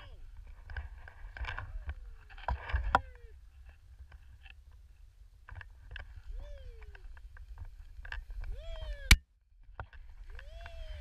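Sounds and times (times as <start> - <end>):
person whooping: 6.3 - 7.1, 8.5 - 9.2, 10.3 - 11.0.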